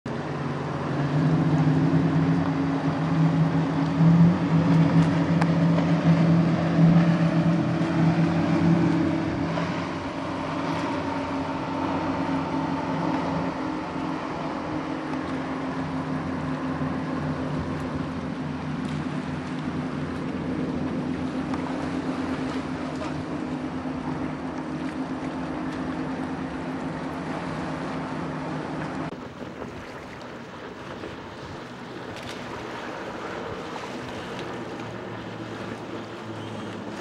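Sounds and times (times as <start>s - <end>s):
powerboat engine drone: 0.0s - 37.0s
rush of water: 0.1s - 37.0s.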